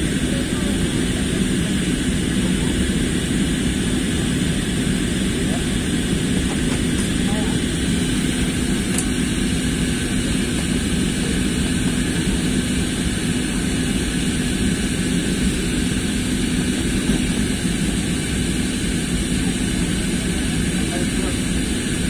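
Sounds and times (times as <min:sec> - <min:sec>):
jet engines droning: 0:00.0 - 0:22.0
steady low hum: 0:00.0 - 0:22.0.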